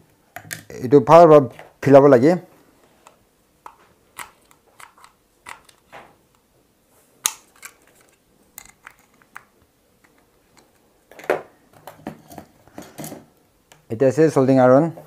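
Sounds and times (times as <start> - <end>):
plastic clicks and scrapes: 3.7 - 5.9.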